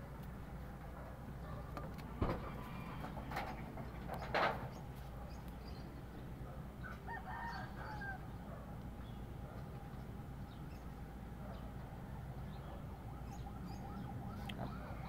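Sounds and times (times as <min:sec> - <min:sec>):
faint rooster crow: 0:02.3 - 0:03.3, 0:06.8 - 0:08.6, 0:12.9 - 0:15.0.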